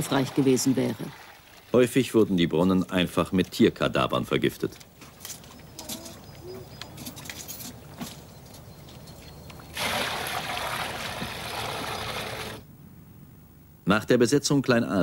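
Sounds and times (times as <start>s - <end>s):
water splashing into trough: 0.0s - 2.1s, 9.8s - 12.6s
water dripping: 0.0s - 3.6s.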